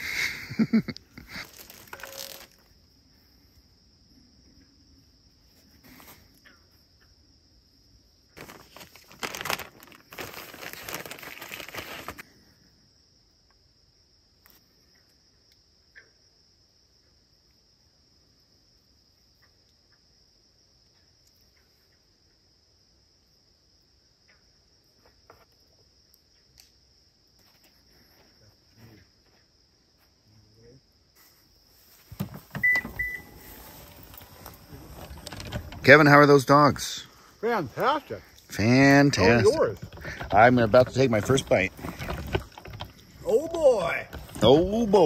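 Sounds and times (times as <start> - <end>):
crickets chirring: 0.0 - 45.0
plastic bag crinkling: 1.3 - 2.6, 8.4 - 12.2.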